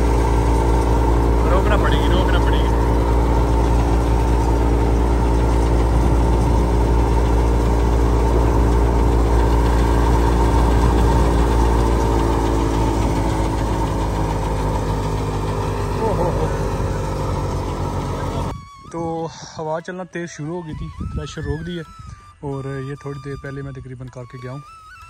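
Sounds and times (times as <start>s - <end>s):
wheat thresher running: 0.0s - 18.6s.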